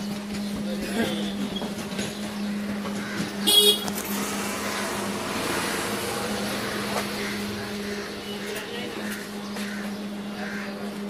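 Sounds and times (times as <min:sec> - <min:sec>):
street traffic: 0:00.0 - 0:11.0
vehicle horn honk: 0:03.4 - 0:04.0.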